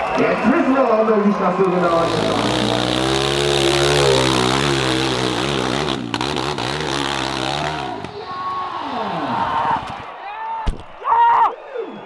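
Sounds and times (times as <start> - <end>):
dirt bike engine revving: 1.7 - 8.2.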